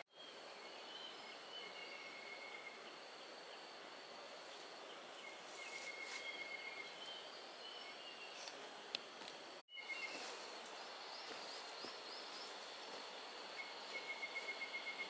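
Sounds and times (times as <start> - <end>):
forest rushing hiss: 0.1 - 15.0
thin high calls: 4.5 - 8.6, 9.8 - 15.0.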